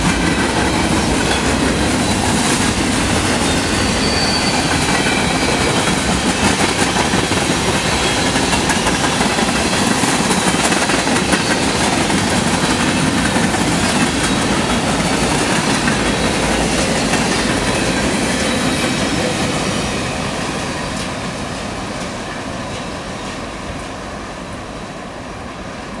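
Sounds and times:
rail clicking: 0:00.0 - 0:23.9
freight train wheels rumbling on rails: 0:00.0 - 0:26.0.

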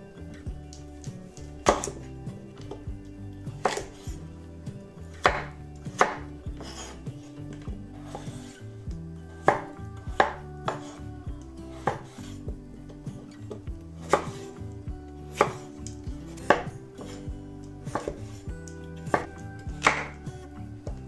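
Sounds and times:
knife chopping on wooden board: 0:01.6 - 0:02.0, 0:03.6 - 0:04.2, 0:05.1 - 0:08.6, 0:09.4 - 0:11.0, 0:11.7 - 0:12.4, 0:13.5 - 0:14.5, 0:15.3 - 0:17.2, 0:17.9 - 0:18.3, 0:19.0 - 0:20.2.

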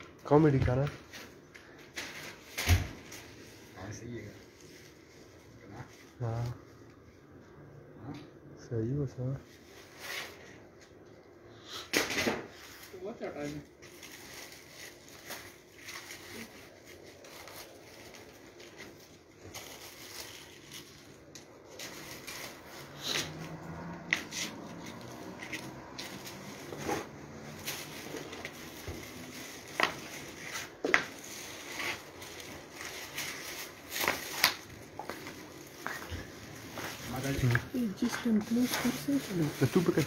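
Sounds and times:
kite sheets rustling: 0:12.5 - 0:40.0.

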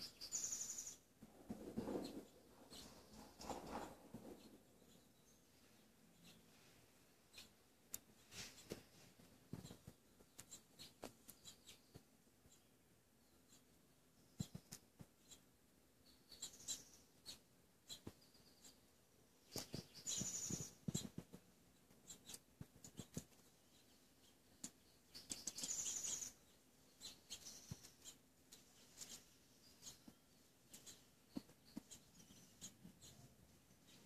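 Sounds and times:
rodent scratching and rustling: 0:01.2 - 0:04.7.

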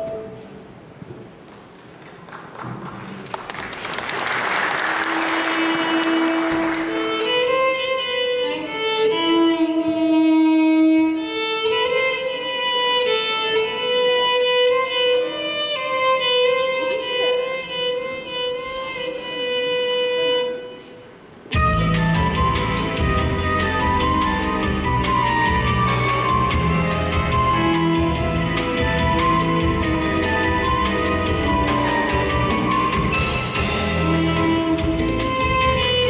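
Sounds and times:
applause: 0:01.5 - 0:07.0
electric violin slow melody: 0:05.5 - 0:36.0.

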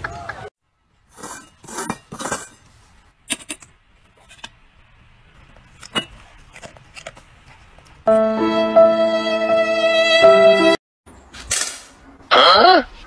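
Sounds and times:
metal bowls scraping on tile: 0:01.1 - 0:02.7.

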